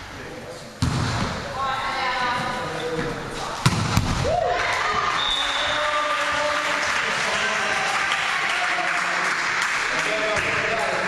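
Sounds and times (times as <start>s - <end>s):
crowd cheering and clapping: 4.2s - 11.0s.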